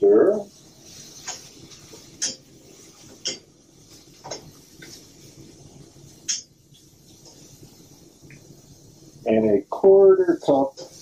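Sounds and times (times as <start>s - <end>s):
metal tongs clinking against pan: 2.2s - 2.5s, 3.2s - 3.5s.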